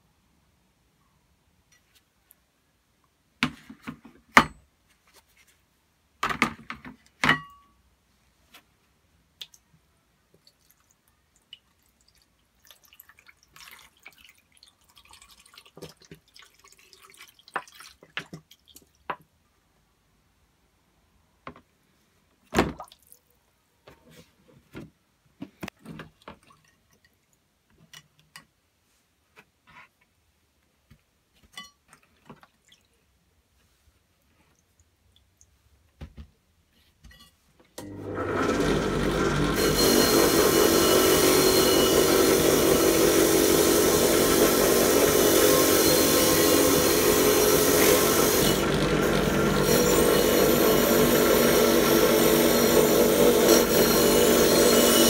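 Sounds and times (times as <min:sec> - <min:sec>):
liquid pouring and splashing: 0:10.4 - 0:19.0.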